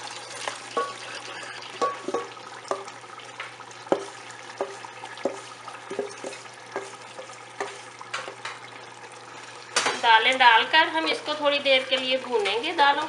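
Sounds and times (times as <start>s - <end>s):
steady sizzle: 0.0s - 13.0s
wooden spoon knocking metal bowl: 0.8s - 1.0s, 1.8s - 2.9s, 3.9s - 8.6s.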